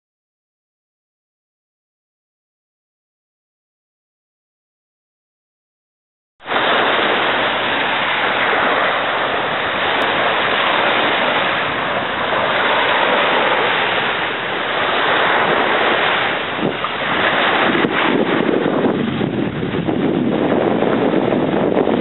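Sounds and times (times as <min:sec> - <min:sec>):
surf: 0:06.4 - 0:22.0
wind: 0:06.4 - 0:22.0.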